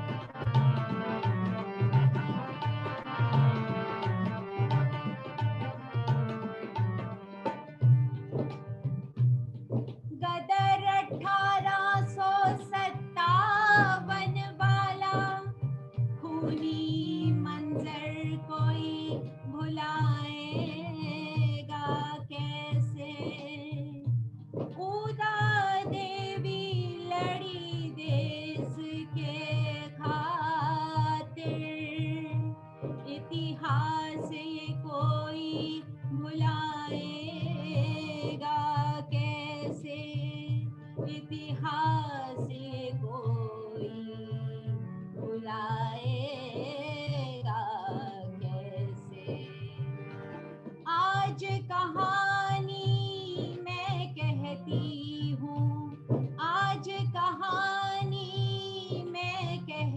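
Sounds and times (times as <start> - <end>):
harmonium: 0.0 - 59.9
tabla beat: 0.0 - 59.9
woman singing: 10.1 - 15.6, 16.2 - 24.1, 24.7 - 50.0, 50.8 - 59.9.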